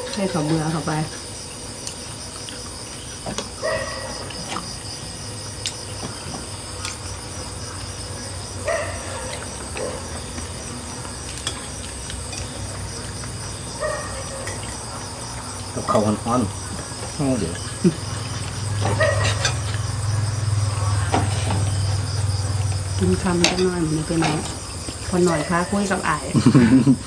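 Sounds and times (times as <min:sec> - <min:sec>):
crickets trilling: 0:00.0 - 0:27.0
spoons clinking on dishes: 0:11.3 - 0:12.6, 0:14.4 - 0:14.9, 0:19.0 - 0:19.8.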